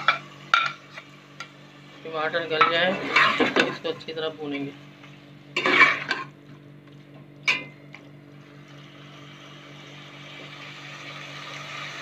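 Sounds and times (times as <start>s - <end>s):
mince sizzling: 0.0s - 7.1s, 7.9s - 12.0s
steady low hum: 0.0s - 12.0s
metal spatula scraping a pot: 2.6s - 4.0s, 5.6s - 6.3s.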